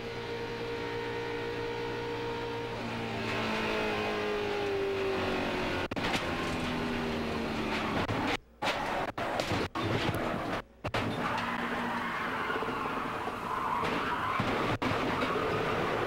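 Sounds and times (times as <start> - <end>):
race car engine: 0.0 - 16.0.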